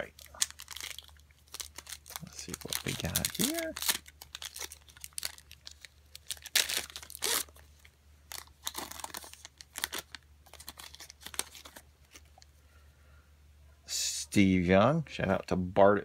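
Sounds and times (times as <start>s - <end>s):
foil wrapper tearing and crinkling: 0.0s - 12.4s.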